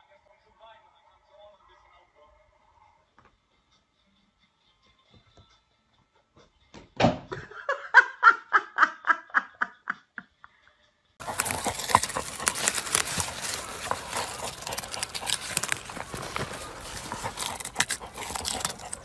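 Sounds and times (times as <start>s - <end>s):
dog digging in soil and leaves: 11.2s - 19.0s.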